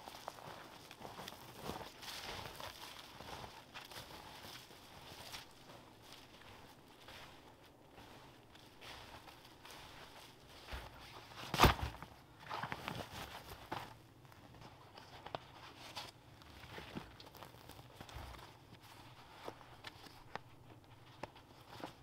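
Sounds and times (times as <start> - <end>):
foam mat rustling and scraping: 0.2 - 14.0.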